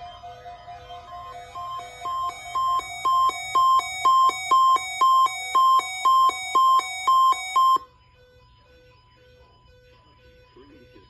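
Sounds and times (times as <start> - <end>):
radio alarm beeping: 0.0 - 7.9.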